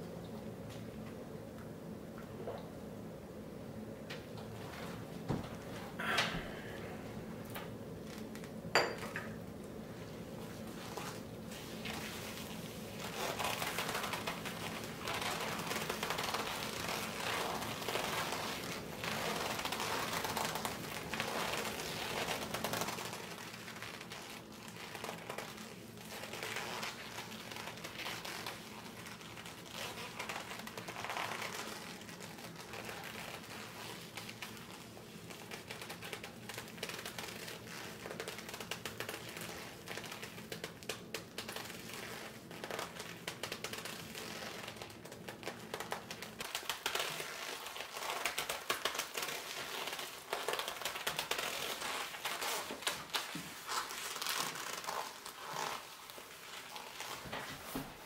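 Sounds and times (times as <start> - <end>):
leather glove creaking on leather: 6.0 - 7.0, 13.0 - 58.0.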